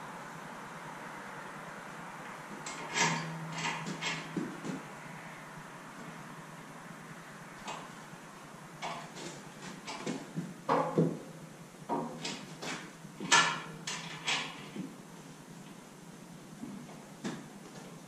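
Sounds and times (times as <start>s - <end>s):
metal clanks and knocks: 2.6s - 4.8s, 8.8s - 11.2s, 11.9s - 14.9s.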